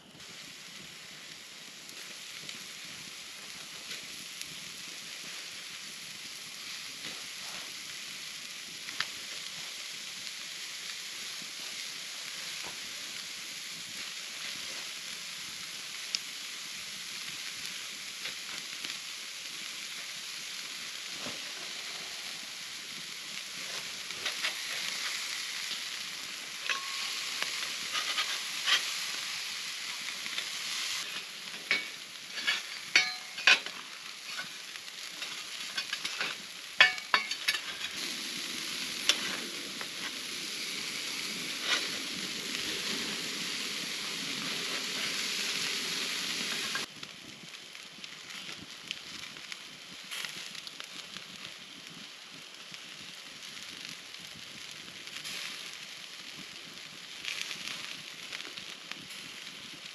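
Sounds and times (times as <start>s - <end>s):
campfire crackling: 0.0s - 59.9s
meat sizzling on a grill: 0.0s - 59.9s
metal spatula scraping grate: 26.6s - 29.3s, 30.4s - 34.6s, 35.2s - 38.1s.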